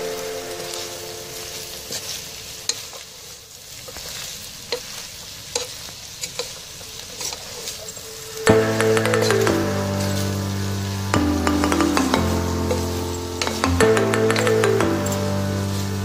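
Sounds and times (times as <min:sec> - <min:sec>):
food sizzling in a pan: 0:00.0 - 0:16.0
loud music: 0:08.4 - 0:16.0.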